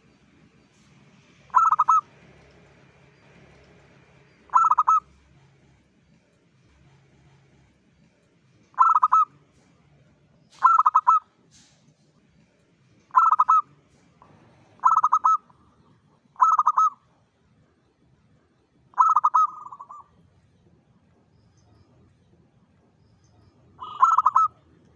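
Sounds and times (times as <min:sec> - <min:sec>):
dove cooing: 0:01.5 - 0:02.2, 0:04.5 - 0:05.6, 0:08.8 - 0:09.4, 0:10.5 - 0:11.3, 0:13.1 - 0:13.7, 0:14.7 - 0:17.1, 0:18.9 - 0:20.2, 0:23.8 - 0:24.7.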